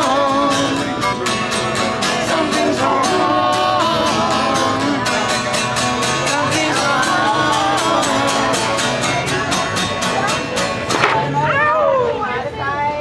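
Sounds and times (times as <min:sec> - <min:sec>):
man and woman singing: 0:00.0 - 0:01.0, 0:02.0 - 0:09.4
acoustic guitar strumming: 0:00.0 - 0:11.6.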